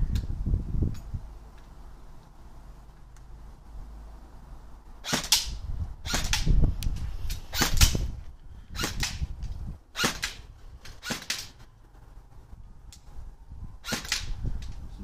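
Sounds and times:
airsoft rifle shots: 5.0s - 6.6s, 7.5s - 8.1s, 8.8s - 9.3s, 9.9s - 11.6s, 13.8s - 14.4s.

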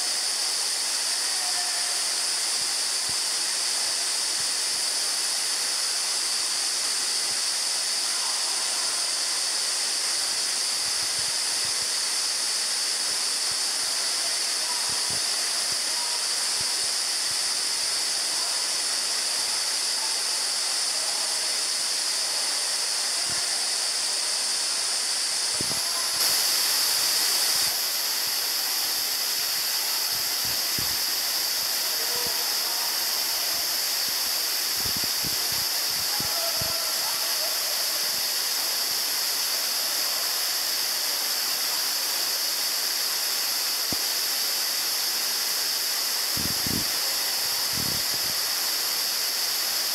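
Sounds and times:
waterfall and stream rushing: 0.0s - 49.9s.

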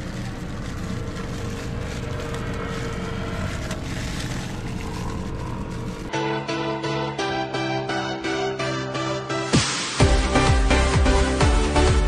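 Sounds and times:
motor humming: 0.0s - 6.2s
electronic music with a beat: 6.1s - 12.0s.

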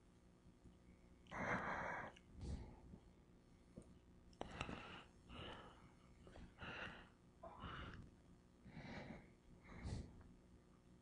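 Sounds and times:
soft puffs of breath: 4.4s - 10.4s.

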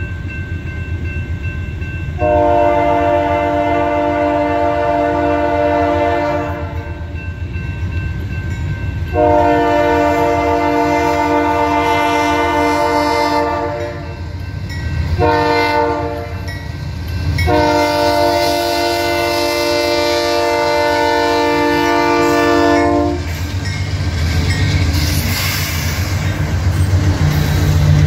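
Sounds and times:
train diesel and wheel rumble: 0.0s - 28.0s
locomotive air horn blasts: 2.2s - 7.0s, 9.1s - 14.2s, 15.2s - 16.5s, 17.4s - 23.3s.

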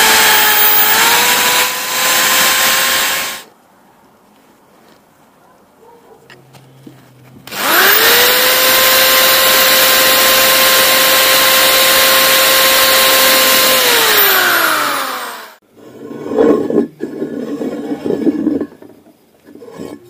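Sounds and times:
electric drill whining: 0.0s - 3.5s, 7.5s - 15.6s.

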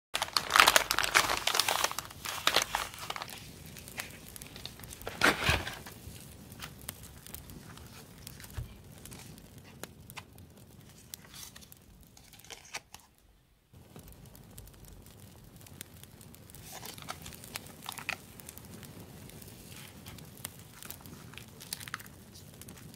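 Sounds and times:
paper envelopes crinkling: 0.2s - 13.1s, 16.6s - 18.3s, 19.6s - 22.9s.

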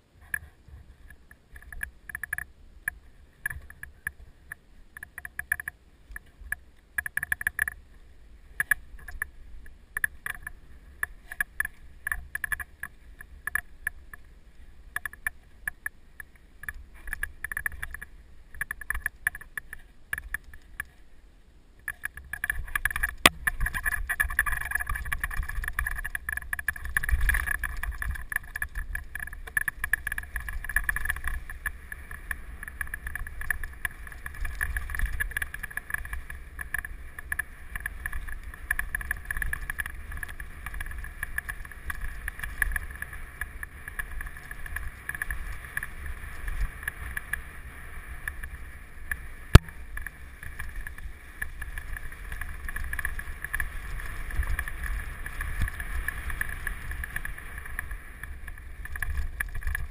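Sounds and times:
bike rattling: 21.8s - 59.9s
bike tyres rumbling on dirt: 22.1s - 59.9s.

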